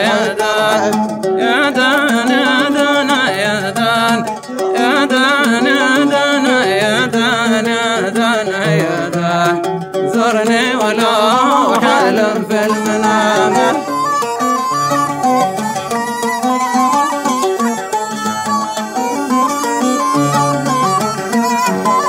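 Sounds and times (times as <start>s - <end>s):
man singing: 0.0s - 14.6s
oud: 0.0s - 22.0s.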